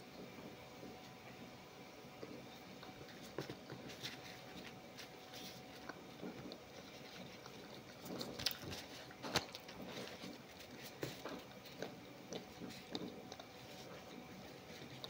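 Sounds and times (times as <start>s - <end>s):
person chewing food: 2.2s - 15.0s.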